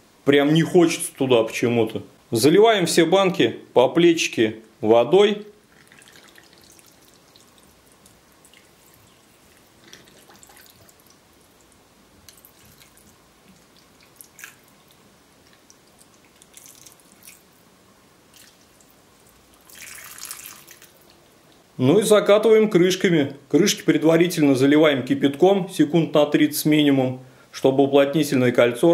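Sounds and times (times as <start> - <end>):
water trickling into jars: 5.7 - 17.5, 18.3 - 21.6.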